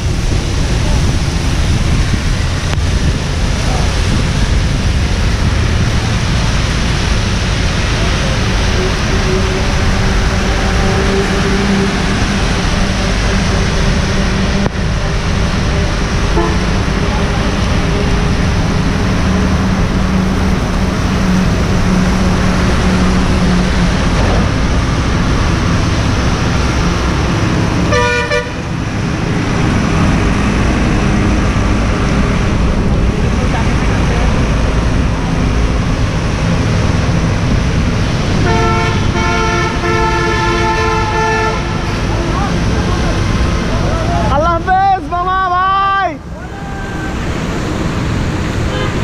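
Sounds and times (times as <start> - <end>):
wind and rain on microphone: 0.0 - 49.0
vehicle horn honking: 16.3 - 16.7, 27.9 - 28.6, 38.4 - 42.1, 48.6 - 49.0.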